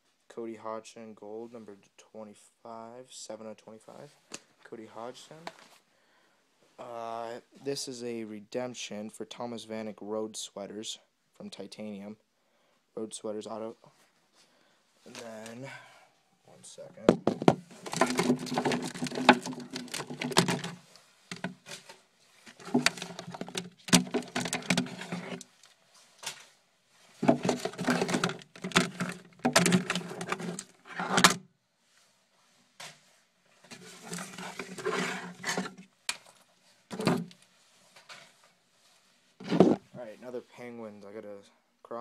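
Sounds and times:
trading cards rustling and clicking: 17.7s - 25.5s, 27.2s - 31.3s.

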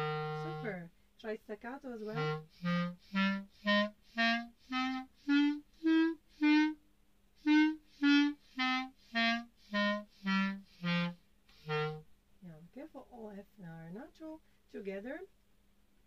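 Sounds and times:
clarinet playing staccato scale: 0.0s - 0.8s, 2.0s - 6.8s, 7.4s - 12.1s.

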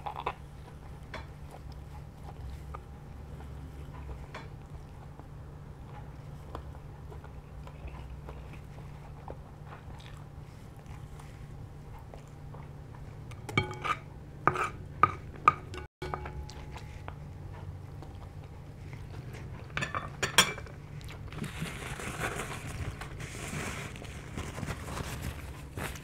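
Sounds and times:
person chewing: 0.0s - 13.4s, 16.3s - 19.8s
low steady hum: 0.0s - 26.0s
cutlery clinking on plates: 13.4s - 16.9s, 19.8s - 20.7s.

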